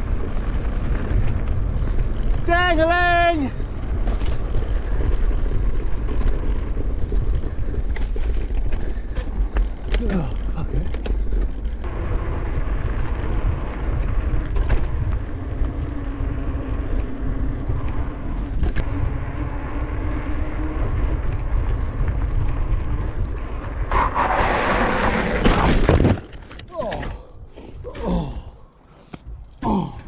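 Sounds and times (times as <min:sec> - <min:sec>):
wind rushing over microphone: 0:00.0 - 0:26.4
bicycle rolling on tarmac: 0:00.0 - 0:29.9.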